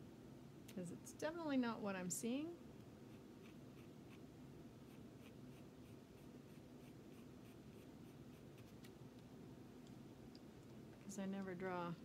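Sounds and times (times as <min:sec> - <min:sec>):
pencil scratching on paper: 0:03.1 - 0:04.2.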